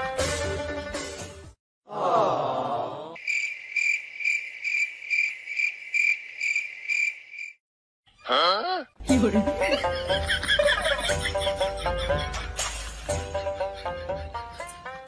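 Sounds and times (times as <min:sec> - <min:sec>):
cricket chirping: 0:03.2 - 0:07.6.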